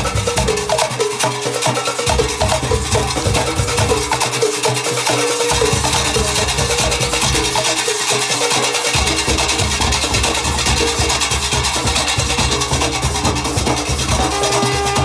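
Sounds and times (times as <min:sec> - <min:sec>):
hand drums beaten fast: 0:00.0 - 0:15.0
street band music: 0:00.0 - 0:15.0.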